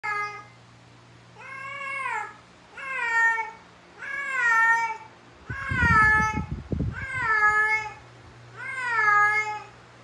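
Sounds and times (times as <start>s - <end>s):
cat meowing long drawn-out: 1.4s - 8.0s, 8.6s - 9.7s.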